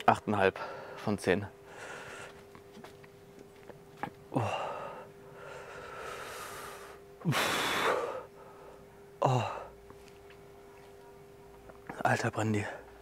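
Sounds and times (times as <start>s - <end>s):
man groaning: 4.3s - 4.9s, 9.2s - 9.7s
man gasping and blowing air: 4.3s - 8.3s.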